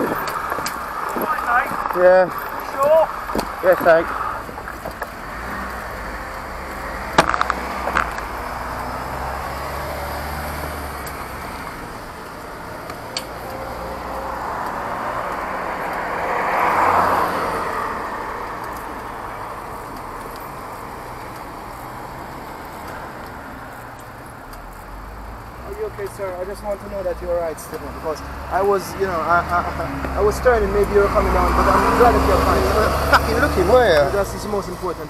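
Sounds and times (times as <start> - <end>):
vehicle driving past: 0.0 - 35.0
sharp knocks: 7.1 - 8.3.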